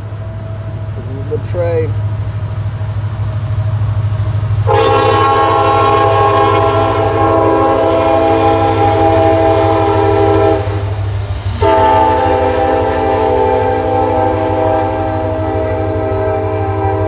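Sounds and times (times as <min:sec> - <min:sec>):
train rumbling: 0:00.0 - 0:17.0
locomotive air horn chord: 0:04.6 - 0:10.9, 0:11.6 - 0:17.0.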